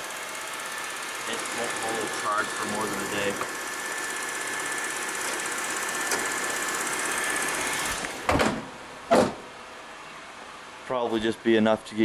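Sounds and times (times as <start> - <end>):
car engine running: 0.0 - 8.2.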